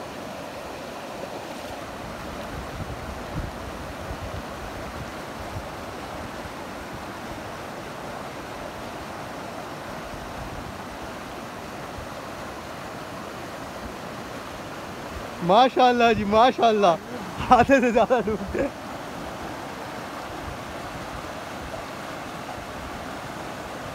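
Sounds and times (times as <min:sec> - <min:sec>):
stream flowing over stones: 0:00.0 - 0:23.9
wind buffeting microphone: 0:02.1 - 0:05.8.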